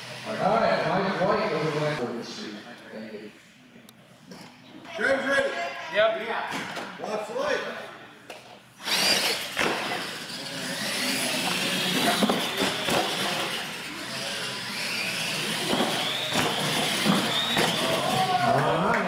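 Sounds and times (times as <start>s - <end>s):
toy truck electric motors whining: 8.8s - 18.5s.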